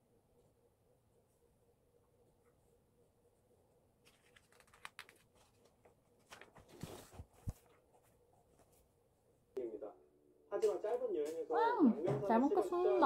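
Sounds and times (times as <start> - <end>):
soft thumps of pages settling: 4.0 - 8.9
paper pages rustling: 4.0 - 9.0.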